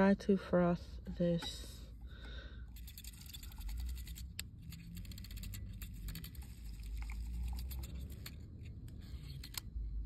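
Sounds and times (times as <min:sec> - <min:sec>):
wire whisk rattling against mug: 0:02.7 - 0:08.3.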